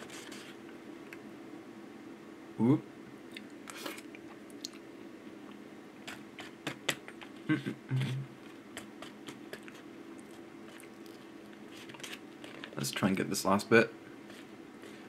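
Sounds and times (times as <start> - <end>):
low mouth sounds: 6.1 - 9.8.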